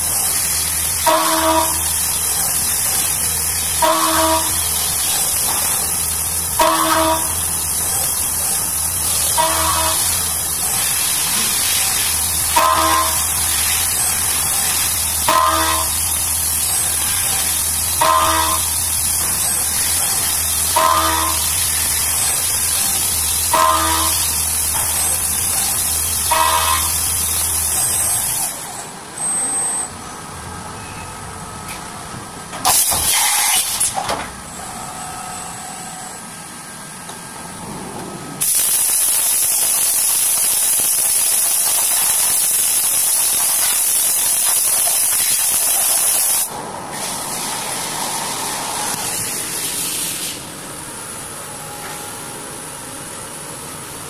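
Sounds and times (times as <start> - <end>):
milling machine coolant hiss: 0.0 - 28.8, 38.4 - 51.1.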